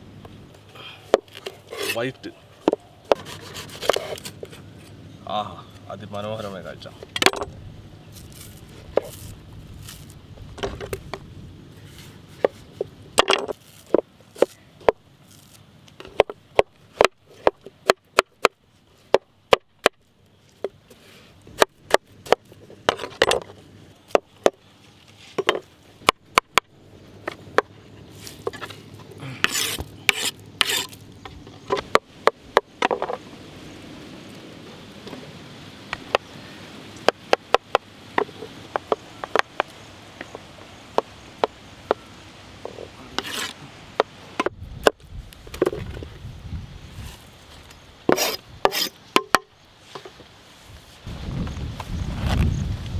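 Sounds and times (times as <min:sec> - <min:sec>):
knife scraping and rustling: 0:01.2 - 0:05.0, 0:08.1 - 0:11.0, 0:11.8 - 0:14.6, 0:27.2 - 0:32.0, 0:42.7 - 0:43.6, 0:46.9 - 0:50.2.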